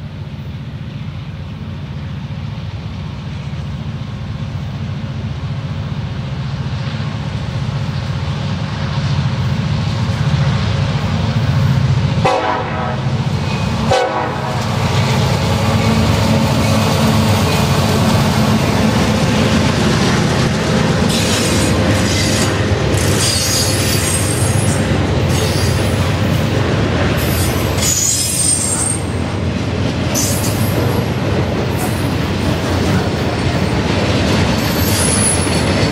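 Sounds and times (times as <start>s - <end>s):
train wheels rumbling on rails: 0.0s - 35.9s
high-pitched wheel squeal: 22.1s - 25.9s, 27.2s - 29.2s, 34.6s - 35.8s.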